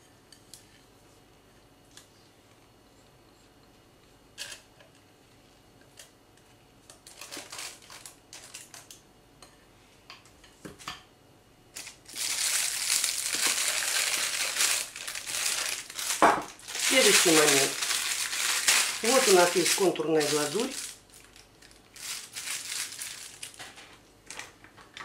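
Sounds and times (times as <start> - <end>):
plastic bag crinkling: 7.1 - 8.8, 11.8 - 24.5.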